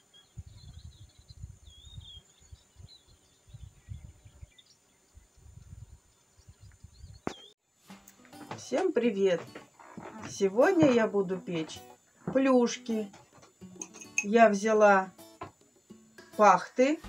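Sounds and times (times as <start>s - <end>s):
small birds chirping: 0.0s - 7.6s
wind buffeting microphone: 0.2s - 7.4s.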